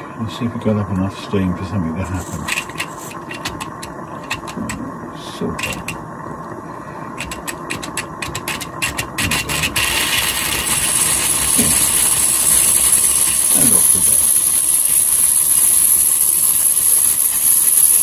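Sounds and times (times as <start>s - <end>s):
steam hissing: 2.0s - 6.0s, 6.6s - 18.0s
sharp clicks: 7.2s - 9.4s.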